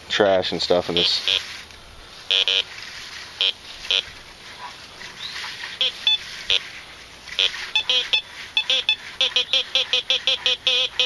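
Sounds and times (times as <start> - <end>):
metal detector short beeps: 1.0 - 1.4, 2.3 - 2.6, 5.8 - 6.6, 7.4 - 11.0.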